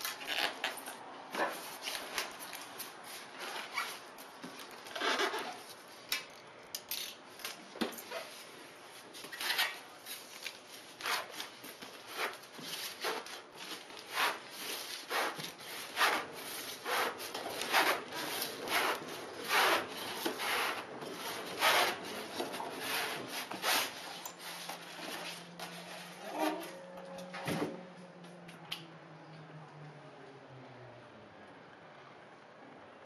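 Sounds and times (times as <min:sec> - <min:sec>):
styrofoam squeaking and scraping: 0:03.3 - 0:04.1, 0:04.9 - 0:05.7, 0:09.2 - 0:10.0, 0:10.9 - 0:26.8.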